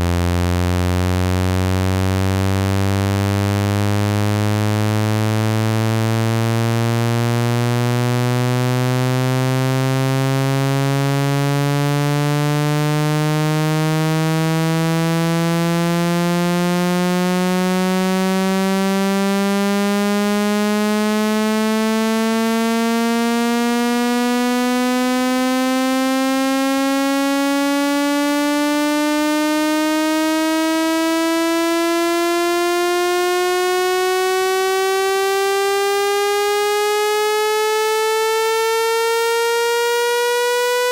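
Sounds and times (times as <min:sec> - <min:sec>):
buzzy electronic tone rising in pitch: 0:26.4 - 0:40.9.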